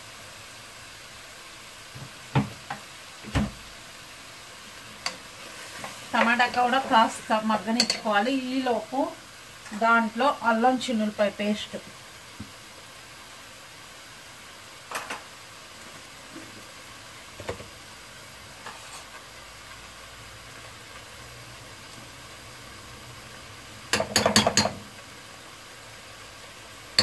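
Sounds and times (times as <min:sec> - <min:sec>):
faint steady sizzle: 0:00.0 - 0:27.0
metal spoon clinking on pot: 0:23.9 - 0:24.8.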